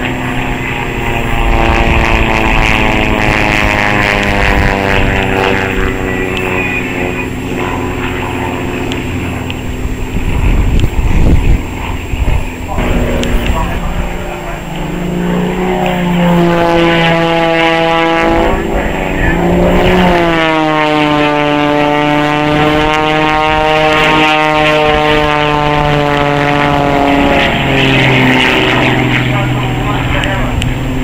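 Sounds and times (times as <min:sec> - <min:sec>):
propeller planes droning past: 0:00.0 - 0:31.0.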